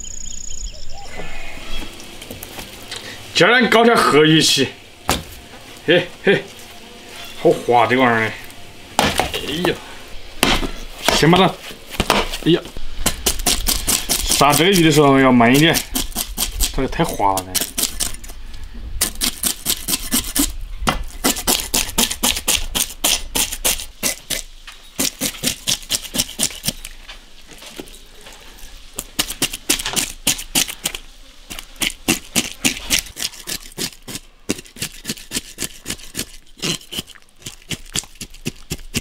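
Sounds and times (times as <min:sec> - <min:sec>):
cleaver scraping fish scales: 0:13.2 - 0:18.4, 0:19.0 - 0:27.0, 0:27.7 - 0:39.0.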